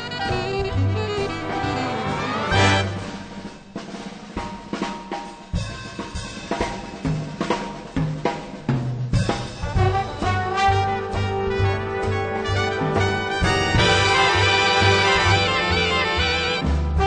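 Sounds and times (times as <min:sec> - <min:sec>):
jazz music: 0:00.0 - 0:17.0
snare and bass drum hits: 0:02.5 - 0:17.0.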